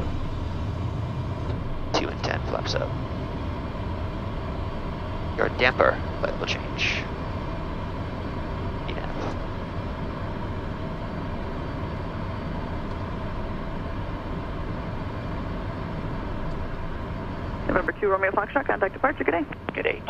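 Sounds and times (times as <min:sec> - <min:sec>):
faint steady hum: 0:00.0 - 0:20.0
jet roar climbing: 0:00.0 - 0:20.0.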